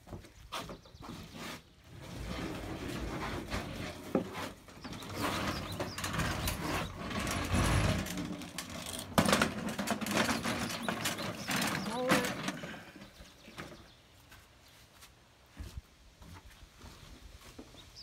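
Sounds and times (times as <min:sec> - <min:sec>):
lawn mower wheeled across wooden floor: 0:00.1 - 0:14.0
mower frame rattling: 0:01.9 - 0:13.9.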